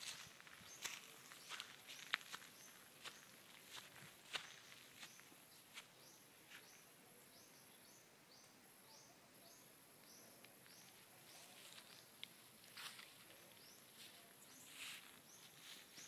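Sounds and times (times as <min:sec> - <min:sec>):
footsteps in undergrowth: 0:00.0 - 0:06.8, 0:10.6 - 0:16.0.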